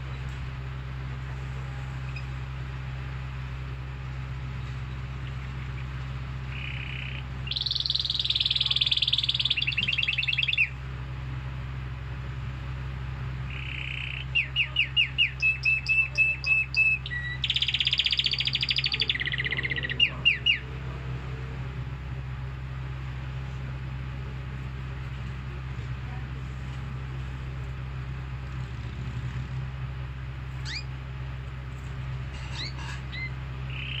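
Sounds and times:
steady low hum: 0:00.0 - 0:34.0
canary singing trills: 0:04.5 - 0:10.8, 0:13.4 - 0:21.8, 0:30.5 - 0:31.0, 0:31.8 - 0:34.0.

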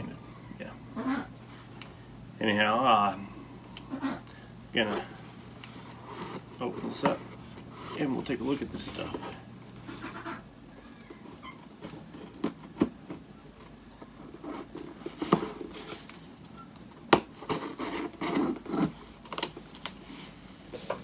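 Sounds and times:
knife scraping packing tape: 0:17.4 - 0:19.5.

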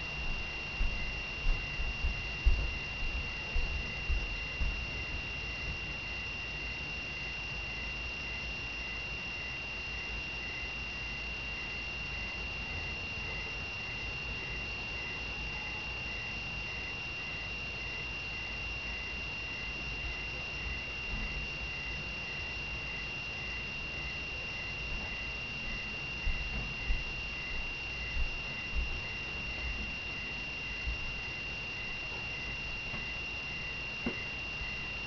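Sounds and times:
faint pulsing tone: 0:00.0 - 0:35.0
steady high-pitched tone: 0:00.0 - 0:35.0
soft low thumps: 0:00.3 - 0:05.2.

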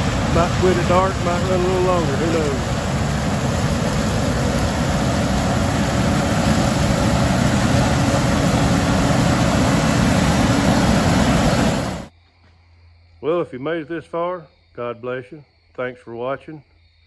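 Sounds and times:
combine harvester running: 0:00.0 - 0:12.1.

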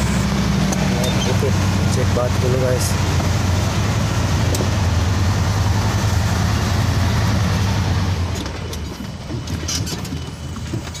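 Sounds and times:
road noise: 0:00.0 - 0:11.0
truck engine drone: 0:00.0 - 0:11.0
rattles and knocks: 0:08.2 - 0:11.0.

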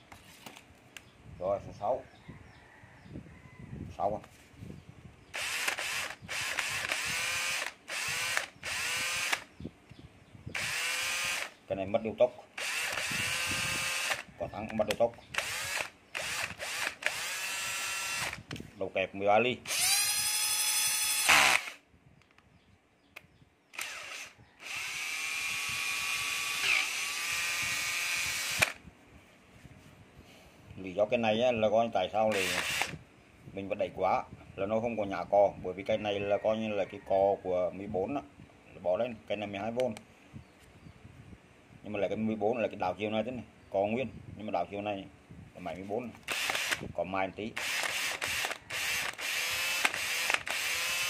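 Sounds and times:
cordless drill motor whining: 0:05.3 - 0:09.6, 0:10.5 - 0:11.6, 0:12.6 - 0:18.6, 0:19.6 - 0:21.8, 0:23.8 - 0:28.8, 0:32.3 - 0:33.0, 0:46.2 - 0:46.9, 0:47.6 - 0:51.0.

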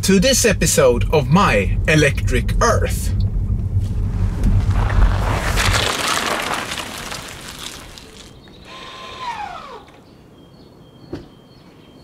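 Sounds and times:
tyres rolling over paving stones: 0:03.8 - 0:08.6
electric motor whine: 0:08.6 - 0:10.0.

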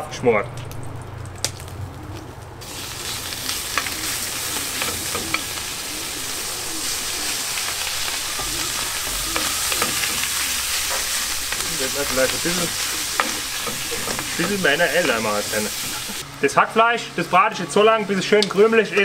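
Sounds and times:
meat sizzling in a pan: 0:02.6 - 0:16.3
wooden spoon scraping a pan: 0:06.7 - 0:16.2.

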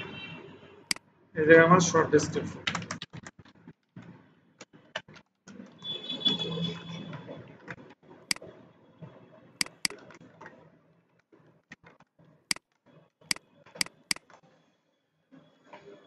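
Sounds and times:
keyboard and mouse clicks: 0:09.6 - 0:10.5, 0:13.7 - 0:14.4.

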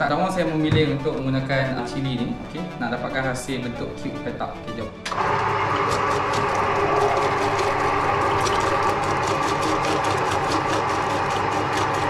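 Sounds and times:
vegetable cutter motor whine: 0:05.1 - 0:12.0.

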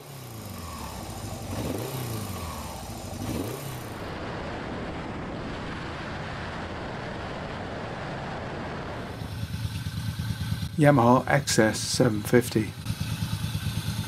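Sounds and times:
motorcycle engine revving: 0:00.0 - 0:04.7, 0:08.9 - 0:14.0
motorcycle riding along road: 0:00.0 - 0:14.0.

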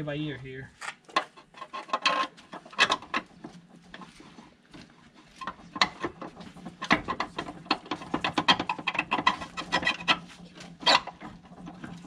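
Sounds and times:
hand driver metallic clicks and rattles: 0:00.8 - 0:03.3, 0:05.4 - 0:12.0.

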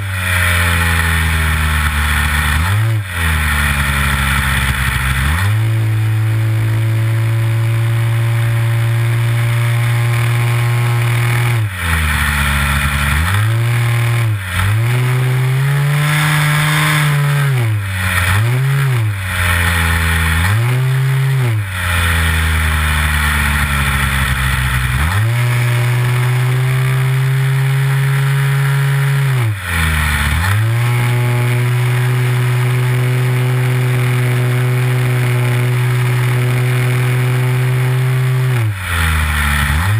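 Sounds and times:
model plane engine running: 0:00.0 - 0:39.9.

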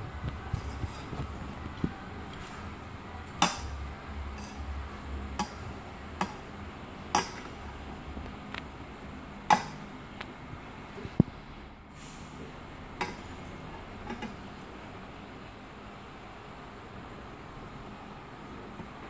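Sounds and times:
metal spoon scraping a bowl: 0:04.3 - 0:04.7.

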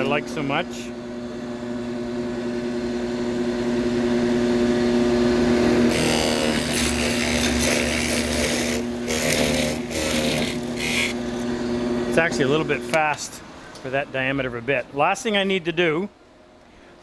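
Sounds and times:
drill press motor humming: 0:00.0 - 0:13.8
drill bit cutting into plywood: 0:05.8 - 0:11.5.

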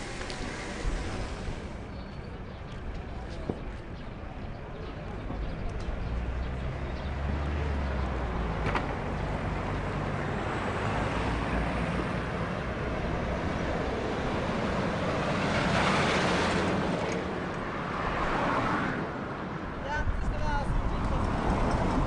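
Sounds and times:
road traffic noise: 0:00.0 - 0:22.0.

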